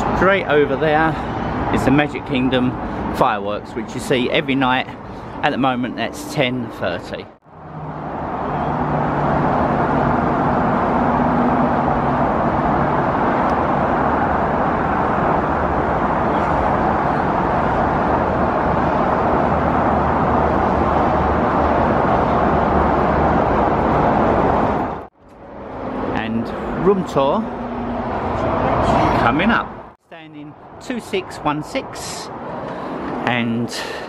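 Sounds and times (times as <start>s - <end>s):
highway traffic roar: 0.0s - 34.0s
passing vehicle engine hum: 4.9s - 29.9s.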